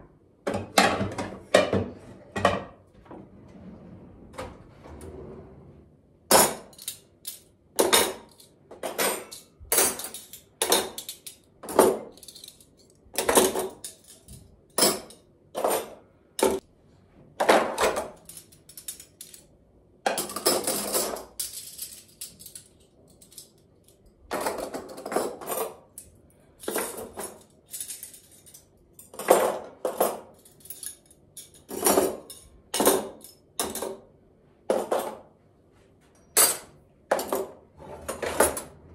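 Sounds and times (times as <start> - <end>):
cutlery rattling: 6.3 - 16.6, 17.4 - 19.5, 20.1 - 23.6, 24.3 - 34.0, 36.3 - 38.9.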